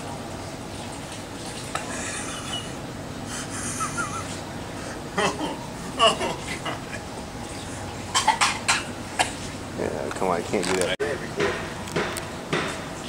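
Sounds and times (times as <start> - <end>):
fountain water running: 0.0 - 11.3.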